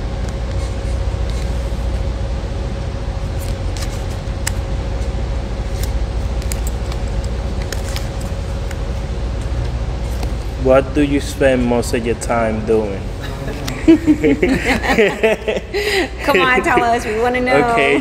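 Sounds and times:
low room hum: 0:00.0 - 0:18.0.

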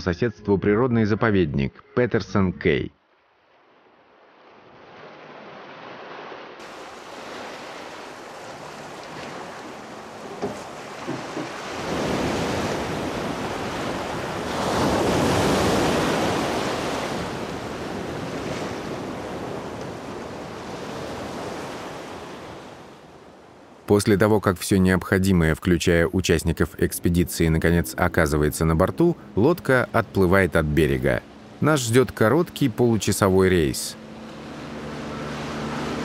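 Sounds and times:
small waves breaking on beach: 0:03.3 - 0:23.9, 0:29.1 - 0:36.0.

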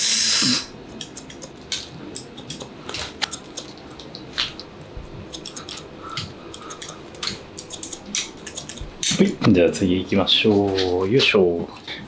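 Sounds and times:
scissors snipping hair: 0:00.9 - 0:04.7, 0:05.3 - 0:09.5.

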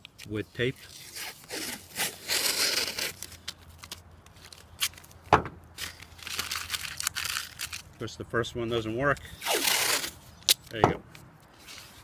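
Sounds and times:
tape ripping off roll: 0:00.8 - 0:05.1, 0:05.8 - 0:07.9, 0:09.4 - 0:10.7
sharp thump: 0:05.3 - 0:05.6.

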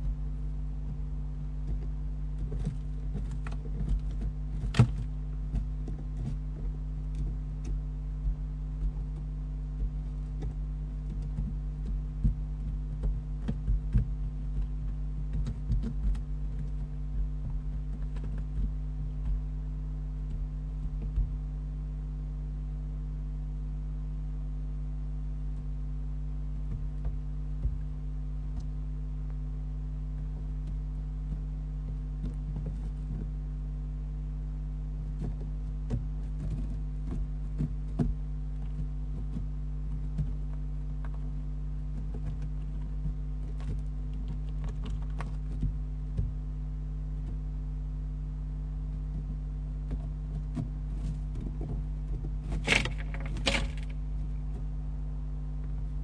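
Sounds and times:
owl scratching in nest litter: 0:00.0 - 0:21.5, 0:47.0 - 0:54.8
steady electrical hum: 0:00.0 - 0:56.0.

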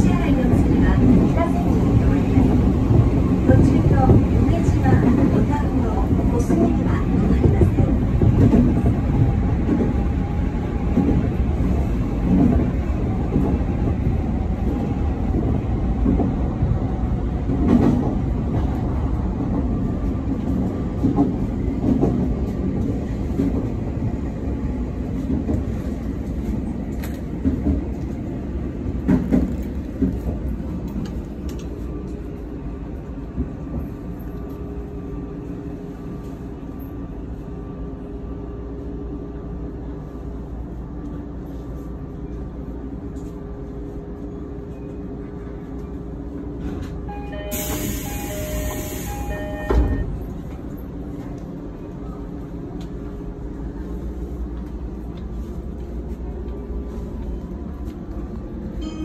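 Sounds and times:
train wheels rumbling on rails: 0:00.0 - 0:59.0
faint train whine: 0:30.8 - 0:59.0.

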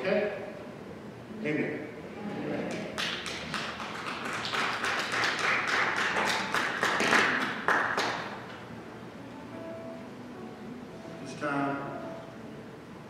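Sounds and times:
congregation clapping: 0:02.6 - 0:08.6.

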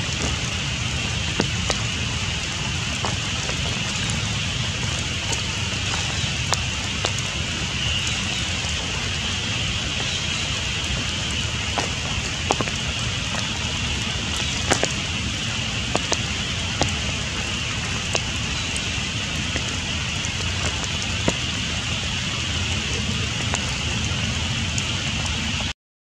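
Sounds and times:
raindrops ticking close by: 0:00.0 - 0:25.7
steady rain falling: 0:00.0 - 0:25.7.

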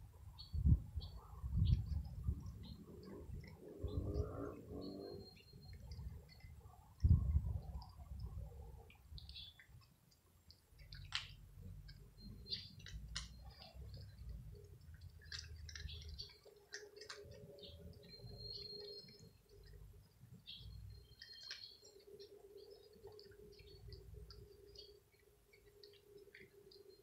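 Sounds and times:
cats crunching dry kibble: 0:10.0 - 0:27.0.

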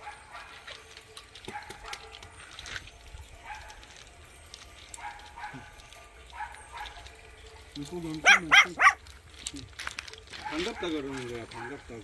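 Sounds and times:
puppies whining: 0:08.1 - 0:09.0.

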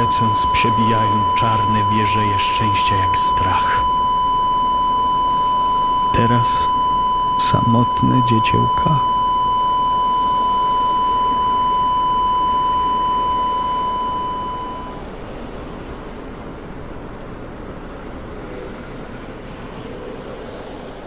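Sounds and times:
high-pitched electronic beep tone: 0:00.0 - 0:15.0.

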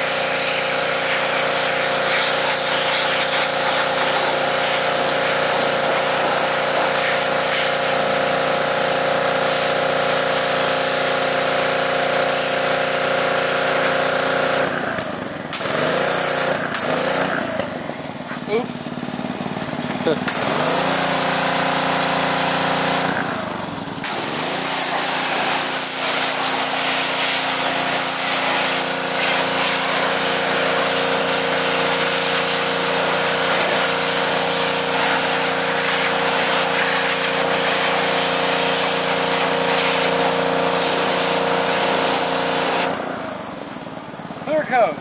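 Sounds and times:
hissing water jet on car: 0:00.0 - 0:14.6, 0:24.0 - 0:42.9
pressure washer engine running: 0:00.0 - 0:45.0.

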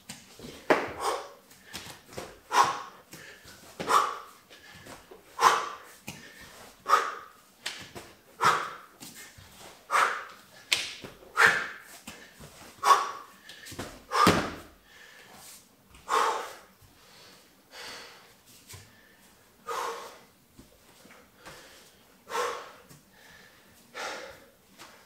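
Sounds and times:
man exhaling forcefully: 0:00.7 - 0:01.4, 0:02.4 - 0:03.0, 0:05.3 - 0:05.8, 0:12.8 - 0:13.3, 0:14.1 - 0:15.1.

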